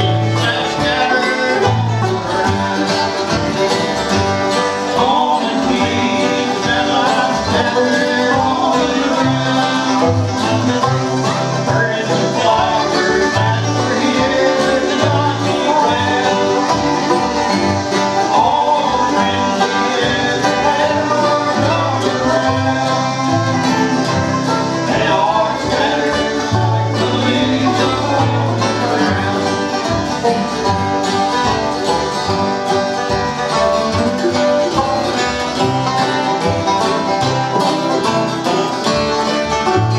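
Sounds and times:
acoustic guitars: 0.0s - 39.9s
banjo: 0.0s - 39.9s
fiddle: 0.0s - 39.9s
mandolin: 0.0s - 39.9s.

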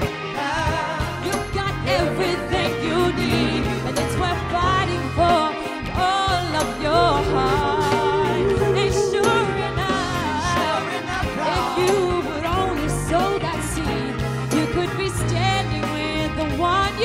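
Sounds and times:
bass: 0.0s - 17.0s
drums: 0.0s - 17.0s
electric guitar: 0.0s - 17.0s
woman singing lead: 0.4s - 17.0s
backing singers: 6.9s - 12.5s.

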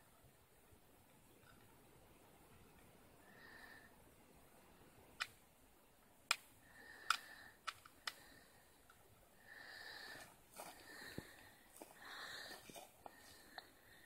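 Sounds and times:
sharp clicks: 5.2s - 5.4s, 6.3s - 8.3s.

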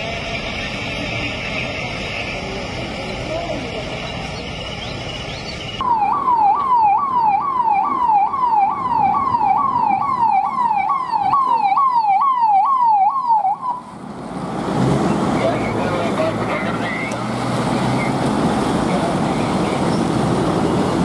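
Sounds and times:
police siren wailing: 5.8s - 14.0s.

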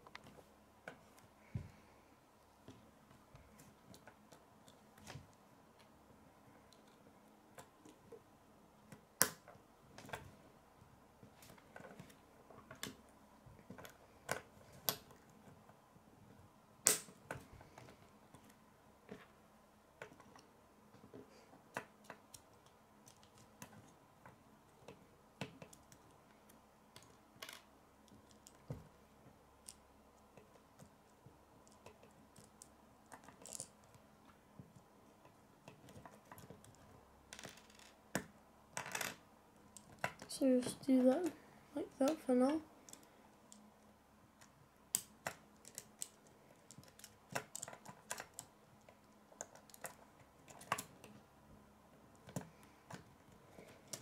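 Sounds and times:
plastic pieces clicking: 31.6s - 34.0s.

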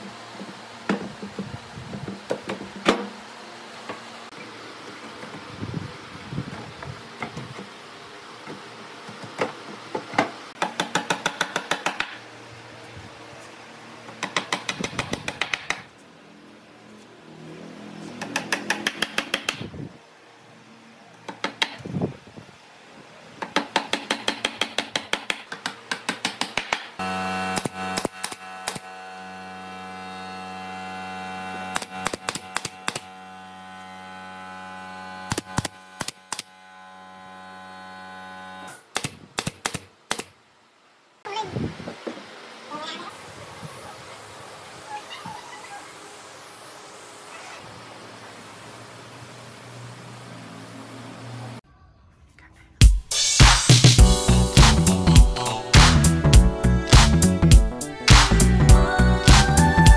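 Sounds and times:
electrical hum: 27.0s - 38.9s.

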